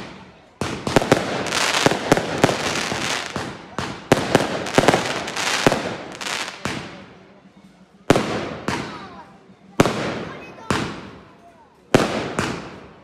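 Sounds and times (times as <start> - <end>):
firework crackle: 0.0 - 7.0, 11.9 - 13.0.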